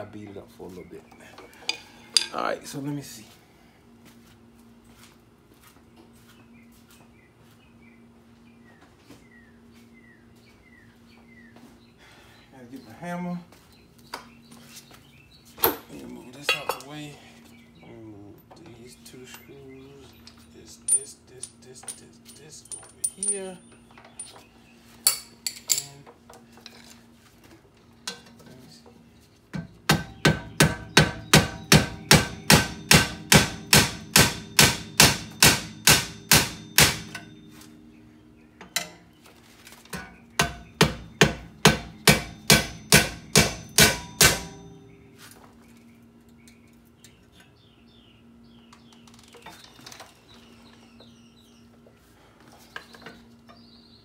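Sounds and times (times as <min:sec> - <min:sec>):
hammer striking steel: 0:29.9 - 0:37.6, 0:39.9 - 0:44.9.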